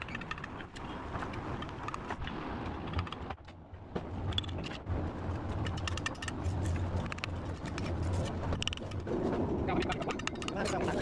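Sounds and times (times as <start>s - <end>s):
trowel scraping and tapping bricks: 5.4s - 9.1s, 9.8s - 11.0s.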